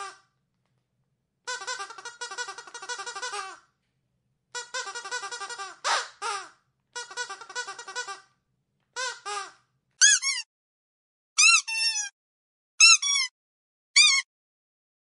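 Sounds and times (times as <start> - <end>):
dog squeaky toy squeaking: 4.6 - 8.2, 9.0 - 10.5, 11.4 - 12.1, 12.8 - 13.3, 14.0 - 14.3.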